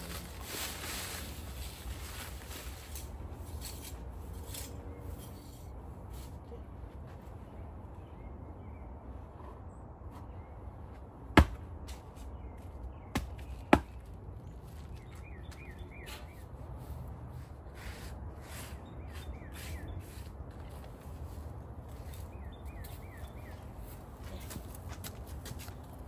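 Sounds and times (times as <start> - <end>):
bird chirping: 12.3 - 16.5, 18.7 - 20.3, 21.3 - 24.0.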